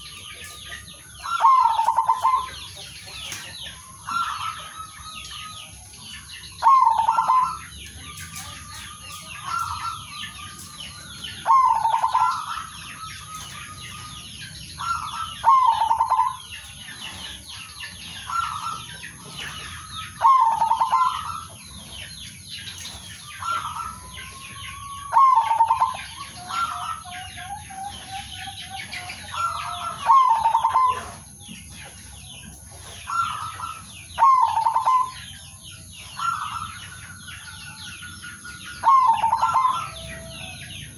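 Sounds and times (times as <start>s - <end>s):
small birds chirping: 0.0s - 40.9s
dove cooing: 1.2s - 3.2s, 6.6s - 7.7s, 11.3s - 21.9s, 23.2s - 31.4s, 32.9s - 35.3s, 38.8s - 40.9s.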